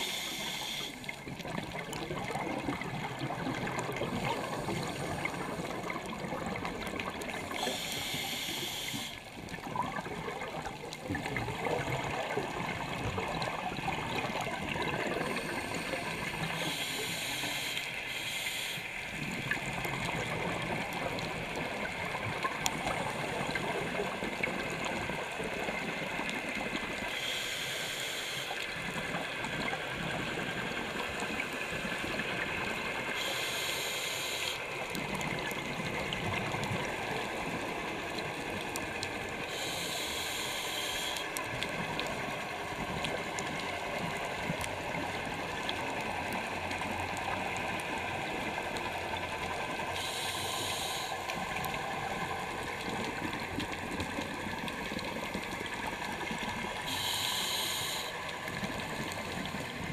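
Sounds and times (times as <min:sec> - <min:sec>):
regulator breath hissing: 0:00.0 - 0:01.1, 0:07.5 - 0:09.2, 0:15.2 - 0:19.0, 0:27.1 - 0:28.6, 0:33.2 - 0:34.6, 0:39.5 - 0:41.3, 0:50.0 - 0:51.3, 0:56.8 - 0:58.2
underwater water noise: 0:00.0 - 0:59.9.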